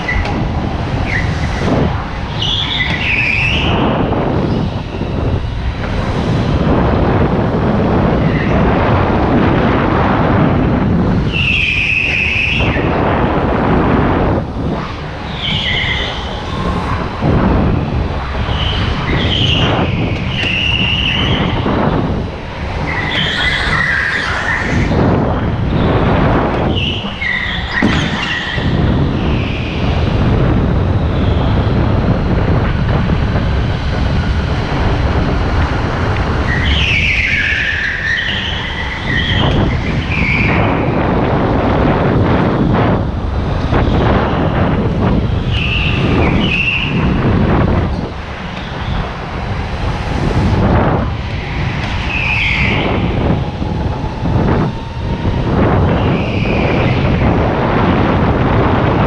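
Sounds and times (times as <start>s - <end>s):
go-kart rushing noise: 0.0s - 59.0s
tyres squealing: 2.2s - 3.8s, 15.2s - 16.9s, 18.2s - 21.6s, 22.4s - 30.0s, 35.7s - 41.0s, 51.2s - 58.0s.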